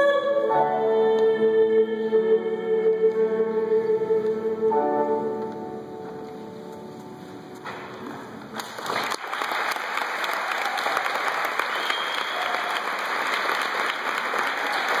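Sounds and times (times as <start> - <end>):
audience applauding: 8.5 - 15.0.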